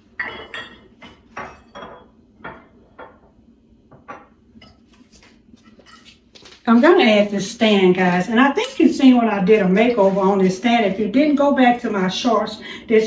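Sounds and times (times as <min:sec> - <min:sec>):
dishes clinking and knocking: 0:00.0 - 0:04.9.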